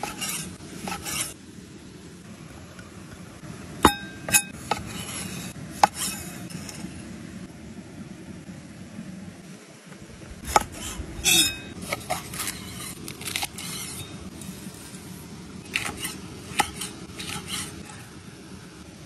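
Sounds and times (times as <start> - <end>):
low rushing background: 6.6 - 19.0.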